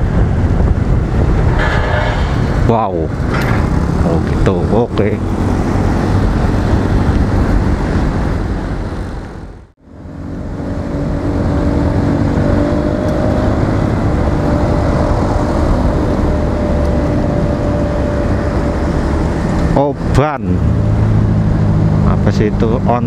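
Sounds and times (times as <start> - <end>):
wind rushing over microphone: 0.0 - 20.1.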